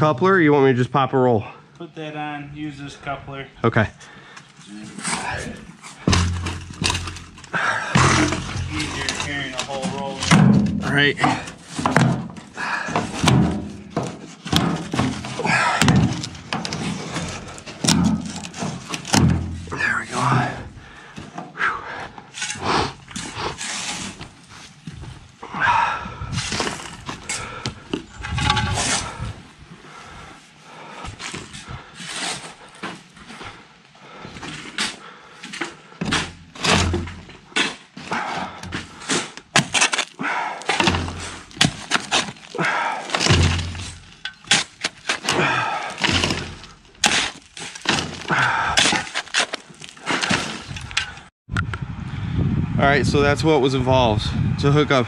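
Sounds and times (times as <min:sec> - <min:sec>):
shovel scraping gravelly soil: 0:04.7 - 0:11.9, 0:22.3 - 0:24.8, 0:31.4 - 0:32.8, 0:38.9 - 0:51.0.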